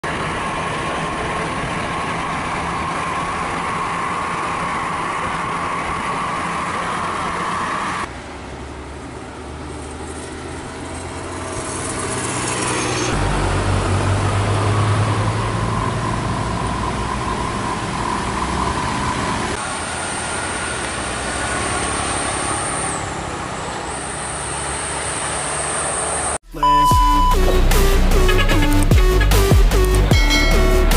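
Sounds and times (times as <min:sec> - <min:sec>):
deep engine hum: 0:00.0 - 0:19.6, 0:26.3 - 0:30.9
motorcycles: 0:00.0 - 0:26.4
buses and truck passing: 0:00.0 - 0:30.9.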